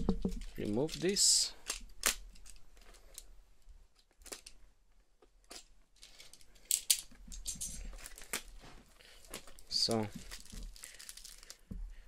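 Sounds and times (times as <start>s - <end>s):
plastic packaging crinkling: 5.5s - 11.8s.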